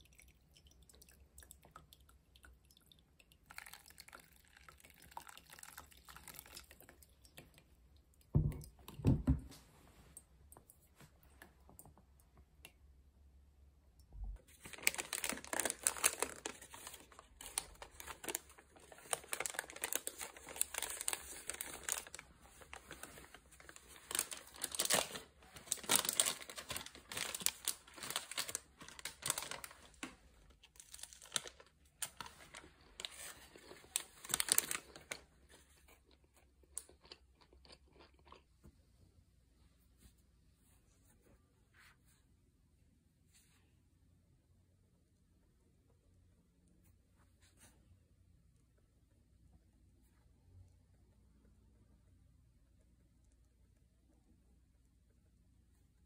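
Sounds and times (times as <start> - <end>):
paper wrapper crinkling: 14.4 - 36.0.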